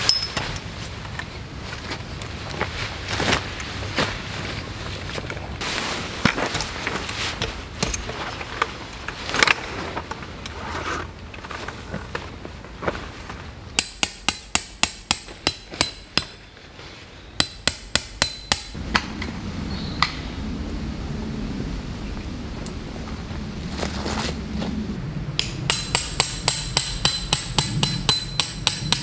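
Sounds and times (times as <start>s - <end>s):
tent fabric rustling: 0.0s - 13.6s, 23.0s - 24.9s
hammer striking tent stake: 13.8s - 16.4s, 17.4s - 19.1s, 25.4s - 29.0s.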